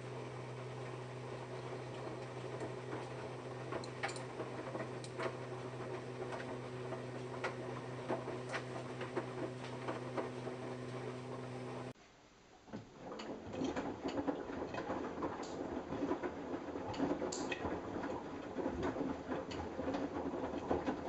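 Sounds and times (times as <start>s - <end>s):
washing machine motor hum: 0.0s - 12.0s
laundry tumbling clicks: 1.5s - 10.4s.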